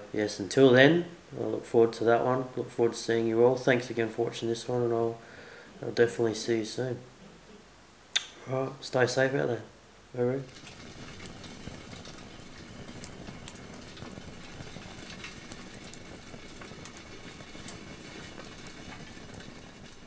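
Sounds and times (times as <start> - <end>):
campfire crackling: 10.1 - 20.0
low fire rumble: 10.1 - 20.0
sharp fire pops: 10.4 - 20.0.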